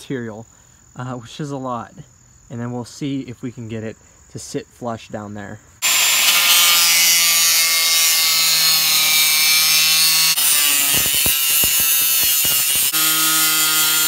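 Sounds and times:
angle grinder cutting sheet steel: 0:05.8 - 0:14.0.

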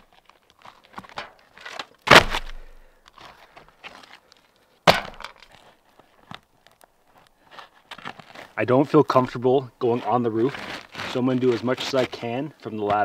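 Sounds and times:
roof shingles scraping and rustling: 0:00.0 - 0:02.3, 0:03.2 - 0:09.2, 0:09.8 - 0:13.0.

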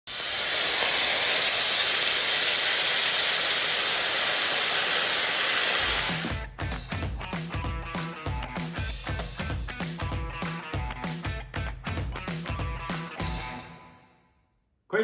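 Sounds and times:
sauce sizzling in a frying pan: 0:00.1 - 0:06.4.

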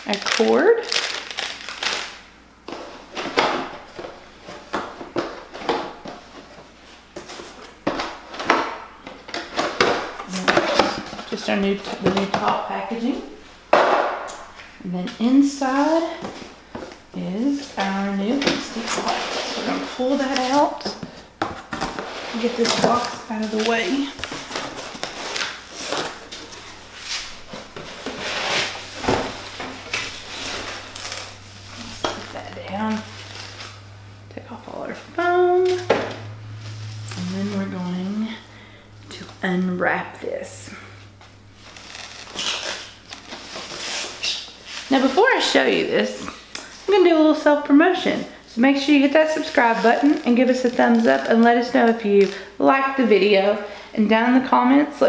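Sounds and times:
plastic and cardboard rustling: 0:00.0 - 0:33.9, 0:41.5 - 0:47.4, 0:48.9 - 0:52.5
cardboard box rustling and scraping: 0:18.8 - 0:33.6.

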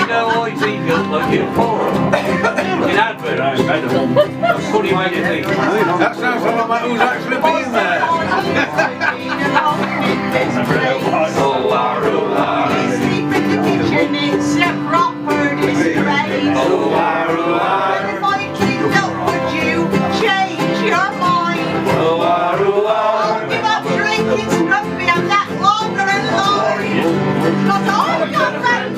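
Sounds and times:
strummed ukulele: 0:00.0 - 0:28.9
woman singing: 0:07.6 - 0:22.0, 0:23.0 - 0:27.0, 0:27.6 - 0:28.9.

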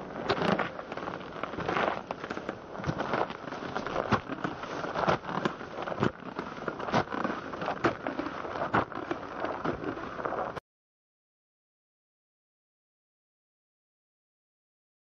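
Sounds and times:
boots crunching on gravel: 0:00.0 - 0:10.5.

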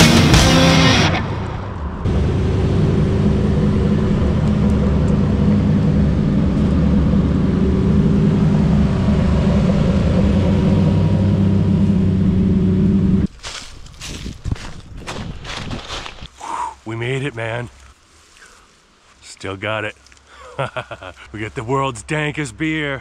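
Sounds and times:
sports car engine droning: 0:00.0 - 0:13.3.

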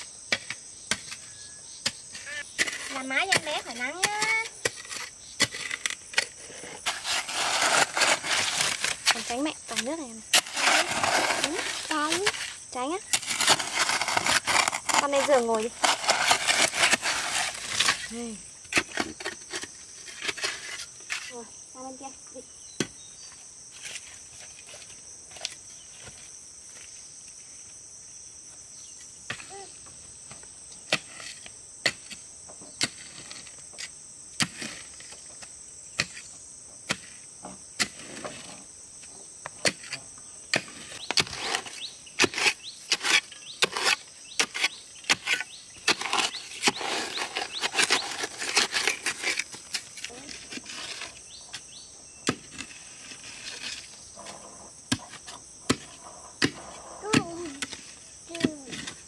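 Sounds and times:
insects chirring: 0:00.0 - 0:59.0.

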